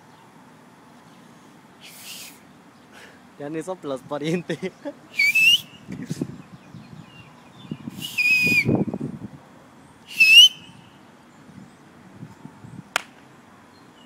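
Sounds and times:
person whistling loudly: 5.2 - 5.7, 8.0 - 8.8, 10.1 - 10.7.

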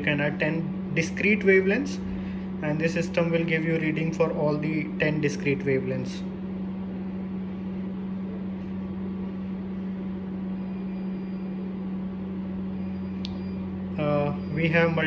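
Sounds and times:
machine hum: 0.0 - 15.0
short click: 13.2 - 13.4.

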